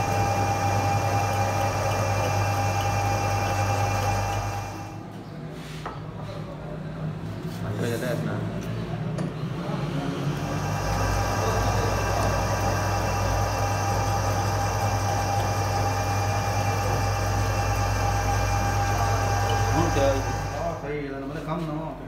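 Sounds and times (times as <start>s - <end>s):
metal lathe hum and whine: 0.0s - 5.0s, 10.2s - 20.9s.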